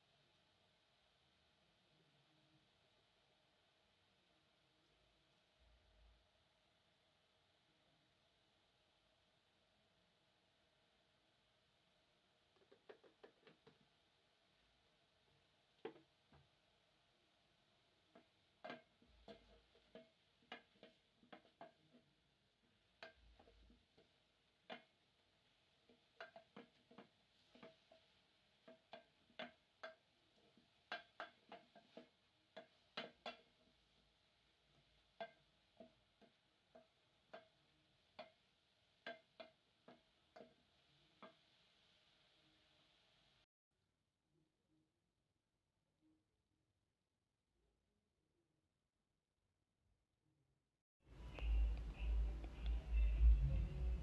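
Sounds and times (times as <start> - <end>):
wooden spoon knocking metal pot: 12.6 - 13.8, 18.1 - 25.0, 25.8 - 33.8, 34.7 - 38.4, 39.0 - 40.6.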